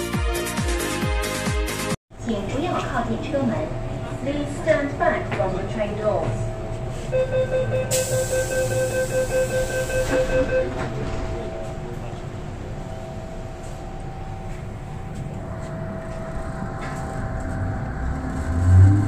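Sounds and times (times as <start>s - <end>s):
train rumble: 2.1s - 19.0s
door-closing warning beeps: 7.0s - 15.3s.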